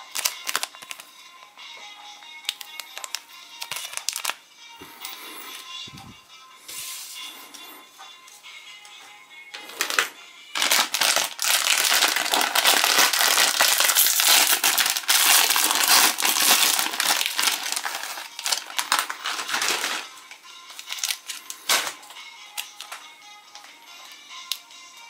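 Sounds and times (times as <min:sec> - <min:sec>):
plastic wrapper crinkling: 0:00.0 - 0:01.2, 0:02.4 - 0:04.4, 0:09.8 - 0:20.1, 0:20.7 - 0:22.0
faint background music: 0:00.0 - 0:25.0.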